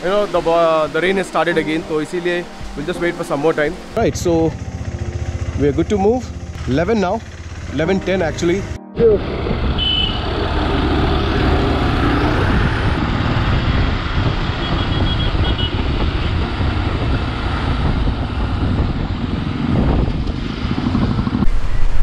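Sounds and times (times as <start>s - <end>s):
motorcycle engine and road noise: 0.0s - 22.0s
wind rushing on microphone: 9.0s - 22.0s.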